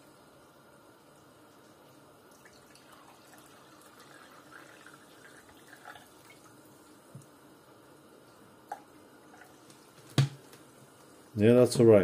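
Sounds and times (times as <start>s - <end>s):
water pouring into glass: 2.3s - 6.6s.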